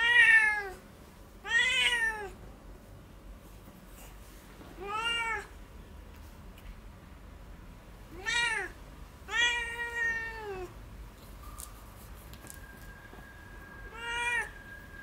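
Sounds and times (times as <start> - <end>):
cat meowing: 0.0 - 0.8, 1.4 - 2.4, 4.8 - 5.5, 8.1 - 10.8, 13.9 - 14.6.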